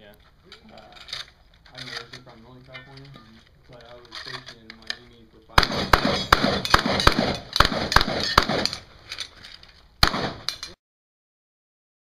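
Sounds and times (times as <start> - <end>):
shotgun shots: 5.6 - 8.9, 10.0 - 10.6.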